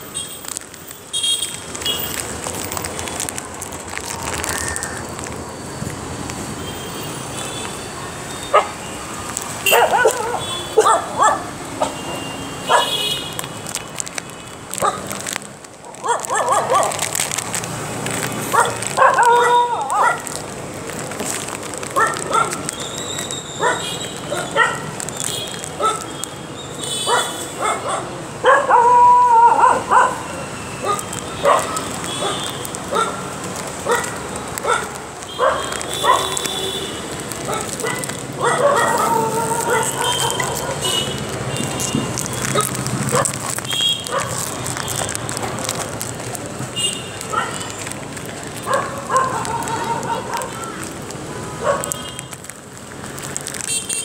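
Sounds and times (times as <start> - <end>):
clicks and rustles: 0.1 - 6.4, 9.1 - 12.0, 12.7 - 27.4, 30.9 - 54.0
dog barking: 8.5 - 8.8, 9.7 - 12.0, 12.7 - 13.0, 15.8 - 17.1, 18.5 - 20.3, 22.0 - 22.6, 23.6 - 24.9, 25.8 - 26.0, 27.1 - 33.2, 33.8 - 36.4, 37.5 - 41.0, 44.0 - 44.5, 47.3 - 47.6, 48.6 - 50.7, 51.6 - 52.0.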